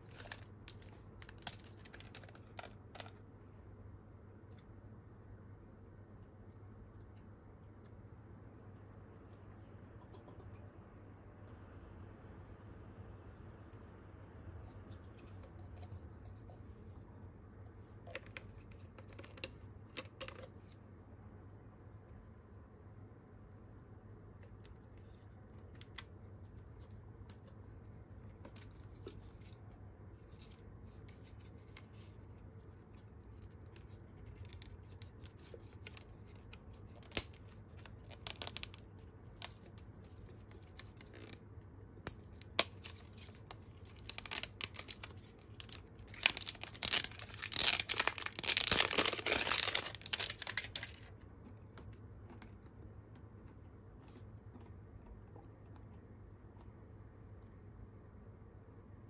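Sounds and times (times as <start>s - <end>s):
plastic label tearing and crinkling: 0.0s - 3.1s, 30.2s - 41.4s, 42.1s - 51.1s
plastic crackling and clicking: 0.0s - 3.2s, 32.6s - 41.4s, 42.1s - 52.6s.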